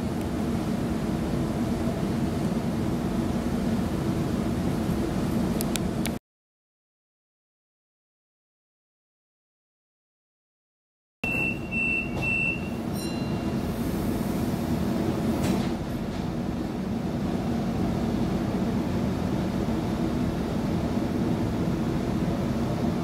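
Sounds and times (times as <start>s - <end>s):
train running rumble: 0.0s - 6.2s, 12.0s - 23.0s
short high beeps: 11.2s - 13.6s.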